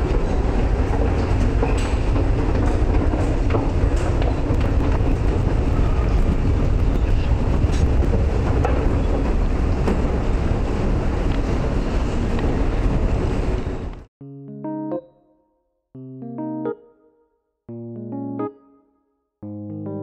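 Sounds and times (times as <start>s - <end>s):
rumbling din of subway passage: 0.0s - 14.1s.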